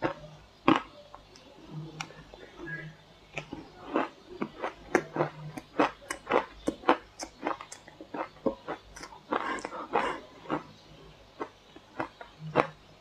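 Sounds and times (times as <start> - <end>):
shaved ice being chewed: 3.4 - 10.8.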